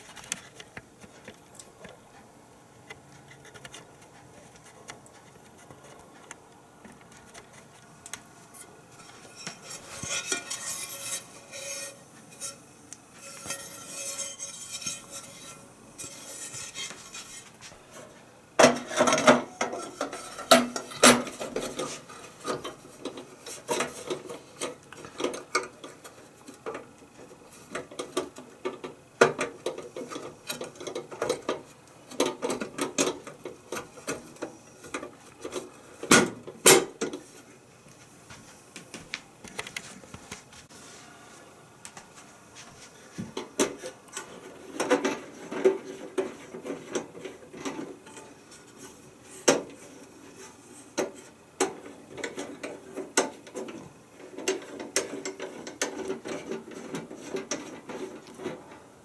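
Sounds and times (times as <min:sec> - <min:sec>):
grill parts clicking and knocking: 0:00.0 - 0:12.6, 0:13.2 - 0:37.3, 0:43.2 - 0:50.1, 0:50.9 - 0:58.8.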